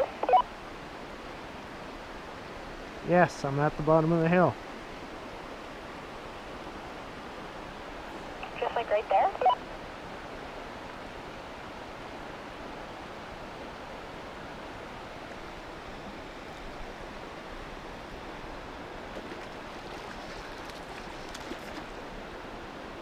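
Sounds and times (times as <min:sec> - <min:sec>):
flowing river water: 0:00.0 - 0:23.0
faint ticks and rustles: 0:19.1 - 0:22.0.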